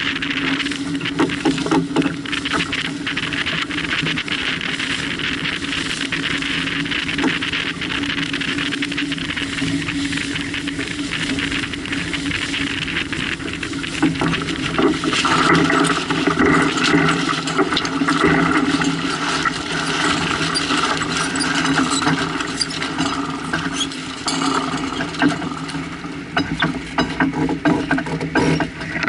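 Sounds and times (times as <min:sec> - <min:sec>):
steady low hum: 0:00.0 - 0:29.0
water rushing along hull: 0:00.0 - 0:29.0
wind on microphone: 0:00.0 - 0:29.0
boat clicks and knocks: 0:00.9 - 0:04.2, 0:10.5 - 0:29.0.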